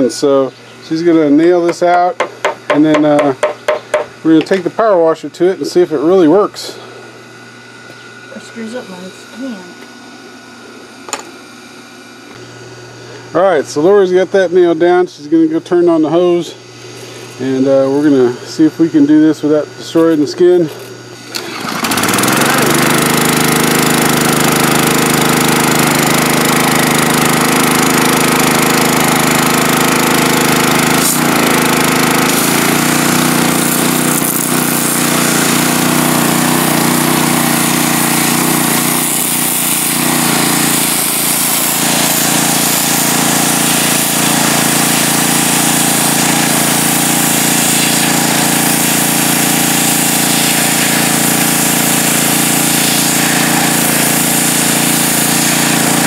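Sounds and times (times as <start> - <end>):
pressure washer running: 0.0 - 56.0
water spraying onto pelt: 21.4 - 56.0.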